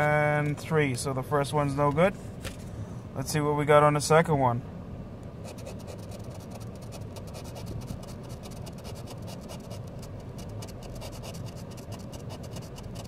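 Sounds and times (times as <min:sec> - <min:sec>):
pen scraping lottery ticket: 0:05.5 - 0:13.0.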